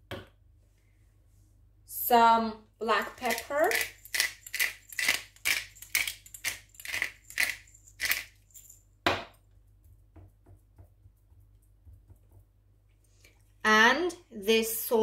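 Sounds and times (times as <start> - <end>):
pepper mill grinding: 2.8 - 8.8.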